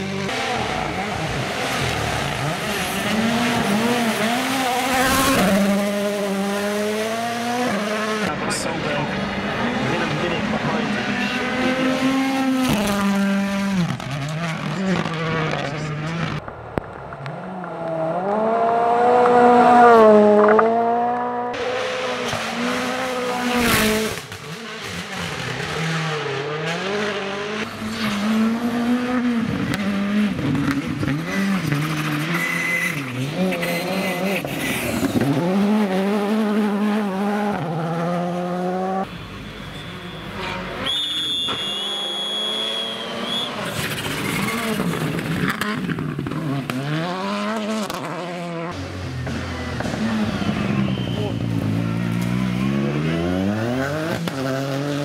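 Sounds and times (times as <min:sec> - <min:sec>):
gravel and tyre noise: 0:00.0 - 0:55.0
rally car engines revving: 0:00.0 - 0:55.0
sharp crack: 0:16.2 - 0:18.4.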